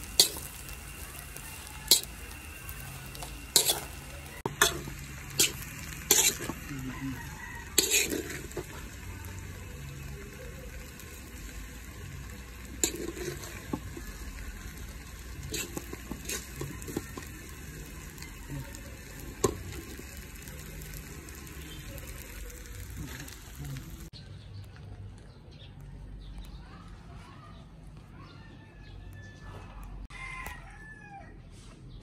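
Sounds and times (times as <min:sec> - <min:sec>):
metal spatula scraping wok: 0:00.0 - 0:09.5, 0:12.3 - 0:18.4
frying sizzle: 0:00.0 - 0:24.8.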